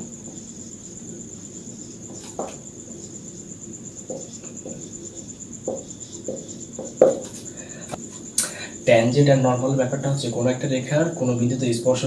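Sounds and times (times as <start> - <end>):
insect trilling: 0.0 - 12.0.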